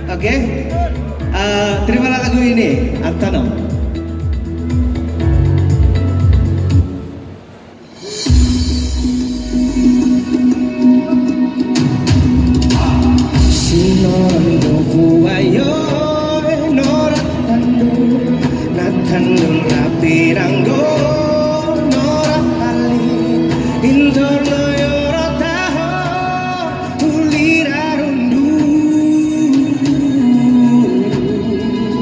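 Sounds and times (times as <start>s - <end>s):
backing track with guitar: 0.0s - 7.3s, 8.2s - 32.0s
man singing into a microphone: 12.7s - 32.0s.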